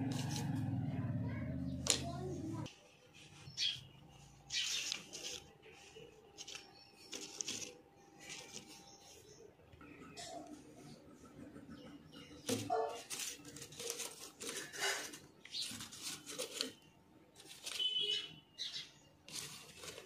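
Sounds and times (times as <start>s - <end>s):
paper rustling and rubbing: 0.0s - 0.6s, 4.1s - 9.4s, 12.5s - 18.2s, 19.2s - 20.0s.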